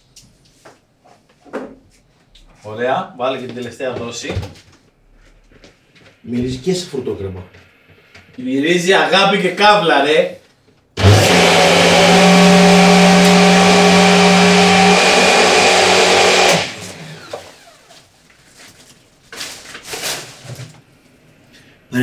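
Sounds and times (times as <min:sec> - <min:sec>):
blender motor running: 0:11.0 - 0:17.8.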